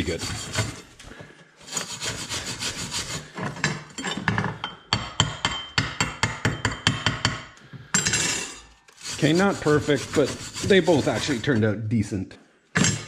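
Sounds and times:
wire brush scrubbing steel: 1.6s - 3.3s, 8.9s - 11.7s.

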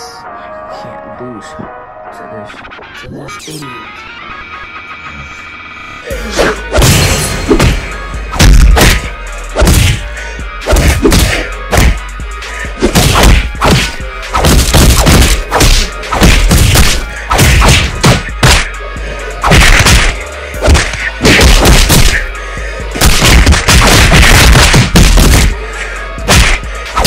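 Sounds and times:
background music: 0.0s - 27.0s
punch and hit sound effects: 6.4s - 10.0s, 10.6s - 12.0s, 12.8s - 18.7s, 19.4s - 22.3s, 22.9s - 25.6s, 26.2s - 27.0s.

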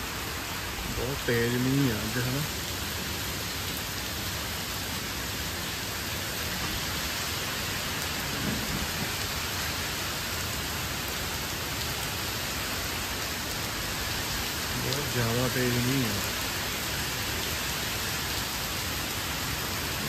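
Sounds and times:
heavy rain on trees and pavement: 0.0s - 20.0s.

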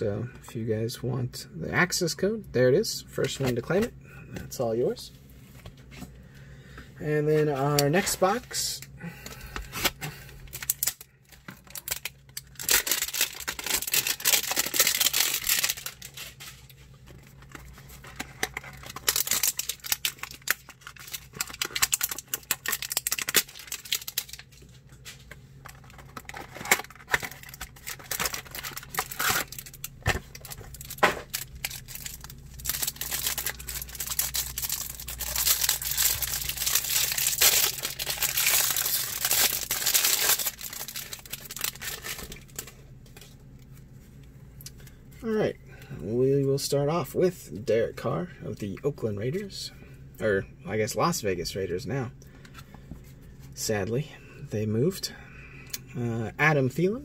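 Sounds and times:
cellophane crinkling and tearing: 7.3s - 43.7s.

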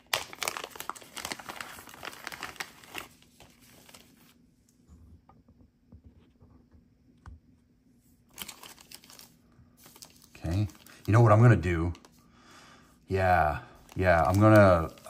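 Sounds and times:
plastic packaging crinkling: 0.0s - 4.4s, 8.3s - 12.2s, 13.1s - 15.0s.

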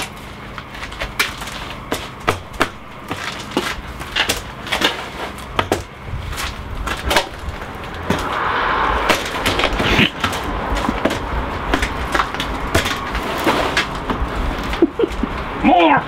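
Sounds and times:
short rushing noise: 7.3s - 13.2s.

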